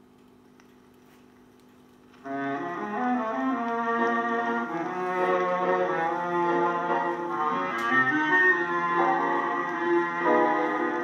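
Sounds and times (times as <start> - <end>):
faint steady hum: 0.0 - 11.0
instrumental music through speaker: 2.2 - 11.0.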